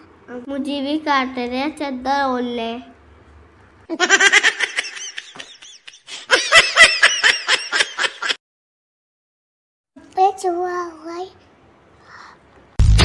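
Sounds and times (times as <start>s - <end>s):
child giggling: 3.9s - 8.4s.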